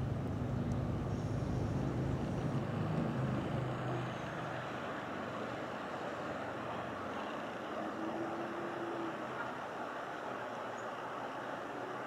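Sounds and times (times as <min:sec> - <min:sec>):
vehicle engine hum passing: 0:00.0 - 0:12.0.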